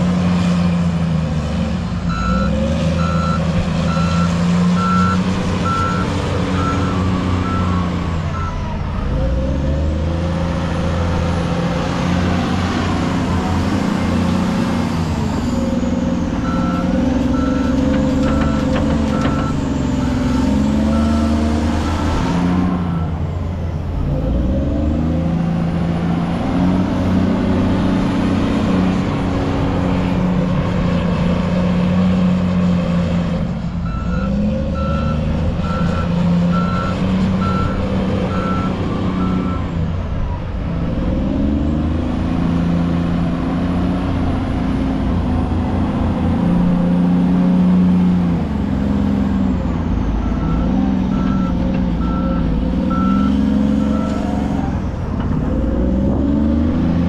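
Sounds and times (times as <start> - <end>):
wheel loader diesel engine: 0.0 - 57.0
reversing alarm beeping: 2.1 - 8.6, 15.8 - 23.2, 33.8 - 39.7, 50.2 - 54.6.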